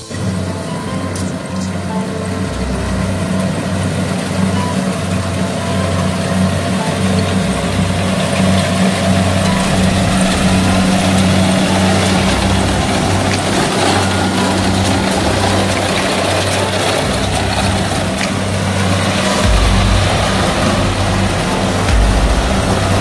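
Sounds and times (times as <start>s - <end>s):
harvester machinery clattering: 0.0s - 23.0s
low engine drone: 0.0s - 23.0s.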